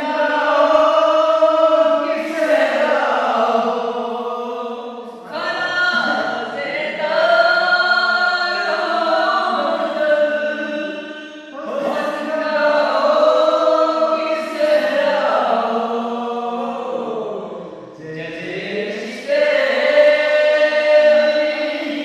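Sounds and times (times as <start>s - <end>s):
men singing devotional song: 0.0s - 22.0s.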